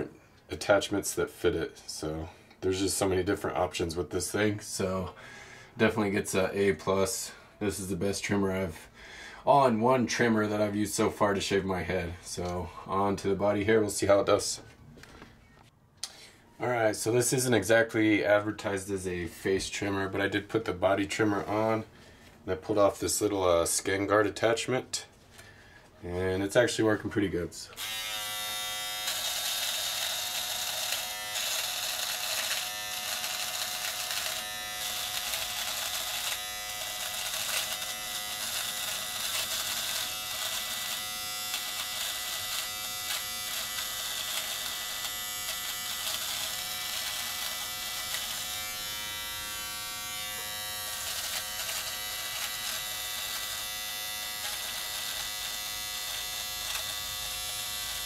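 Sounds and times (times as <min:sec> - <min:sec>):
electric trimmer buzzing: 0:27.7 - 0:58.0.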